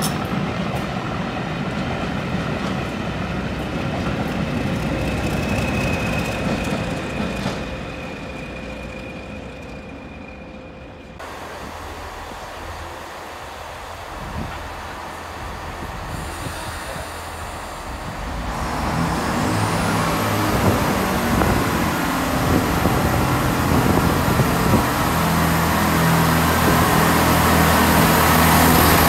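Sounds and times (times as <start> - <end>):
diesel train engines: 0.0 - 29.0
train running noise: 0.0 - 29.0.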